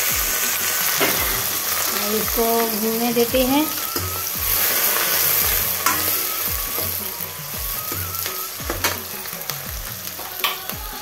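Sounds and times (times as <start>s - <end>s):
vegetables sizzling in hot oil: 0.0s - 11.0s
ladle scraping a pan: 3.8s - 7.2s.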